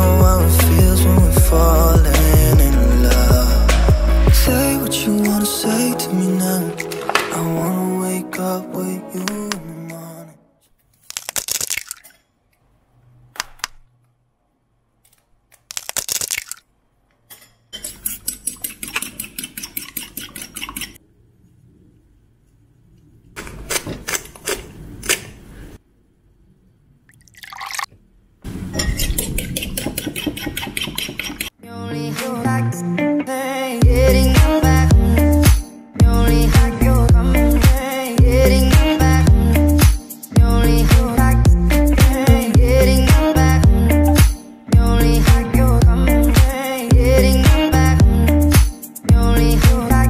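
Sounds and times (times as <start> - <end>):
eggs cracked on bowl: 11.1 - 12.2, 15.7 - 16.6
pepper grinder turning: 15.6 - 16.6
fork whisking in bowl: 17.8 - 21.0, 28.9 - 31.6
milk pouring: 27.1 - 27.9.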